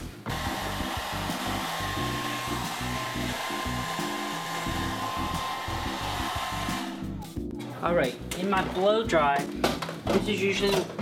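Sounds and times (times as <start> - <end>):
hair dryer blowing: 0.2 - 7.2.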